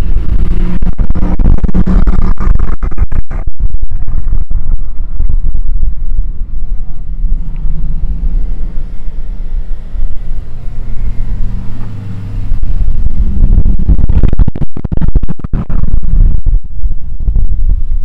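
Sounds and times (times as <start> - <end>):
car driving slowly past: 6.2 - 13.4.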